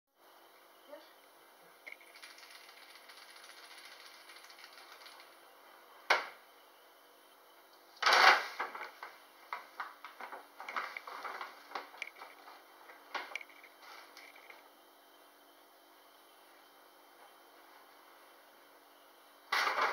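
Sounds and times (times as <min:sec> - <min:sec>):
paper bag crinkling: 0:08.0 - 0:12.6.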